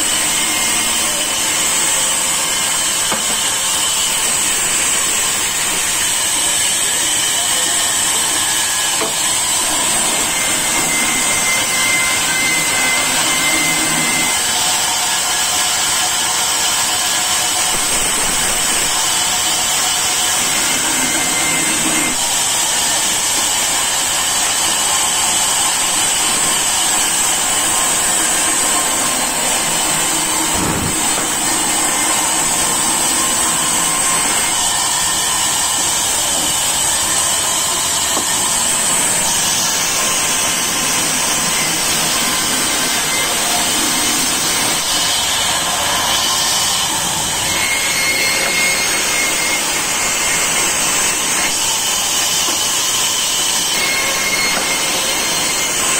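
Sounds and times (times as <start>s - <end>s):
band saw cutting log: 0.0s - 55.9s
knock: 3.1s - 3.4s.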